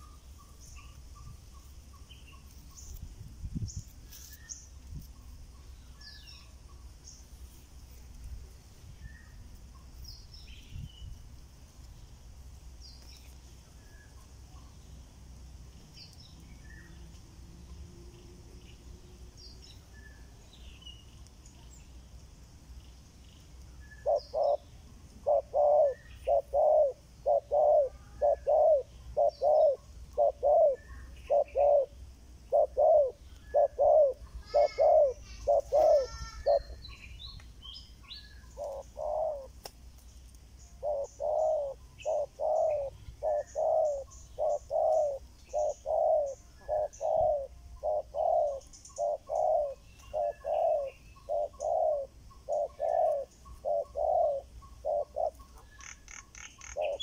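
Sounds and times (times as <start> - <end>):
doves cooing: 24.0 - 36.9, 38.4 - 39.6, 40.6 - 57.0.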